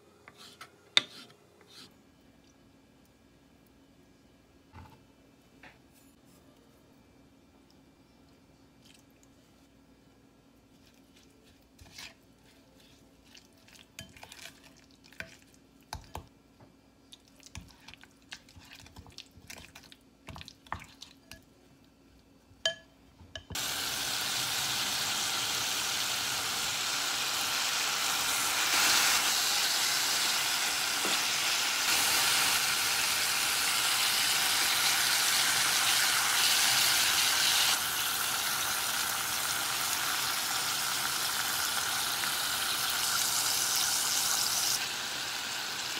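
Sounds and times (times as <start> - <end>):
meat sizzling in a hot pan: 23.6 - 45.9.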